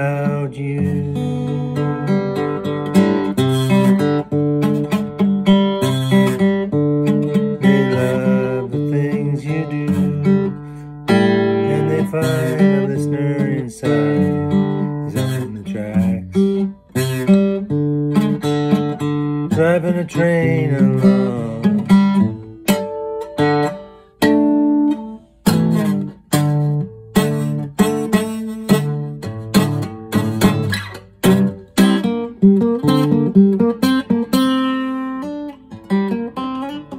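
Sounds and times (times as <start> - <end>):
man singing: 0.0 - 2.3, 7.4 - 16.7, 19.4 - 22.4
acoustic guitar picked and strummed: 0.0 - 36.9.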